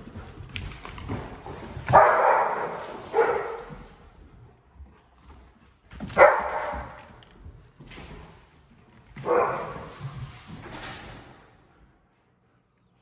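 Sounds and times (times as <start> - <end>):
dogs barking: 1.9 - 3.7, 6.1 - 7.0.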